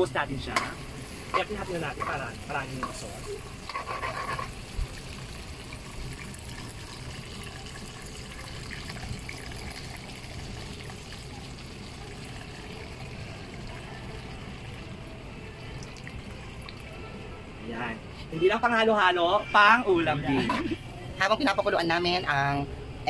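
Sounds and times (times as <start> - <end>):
sauce bubbling: 0.4 - 16.9
liquid pouring into sauce: 4.8 - 16.9.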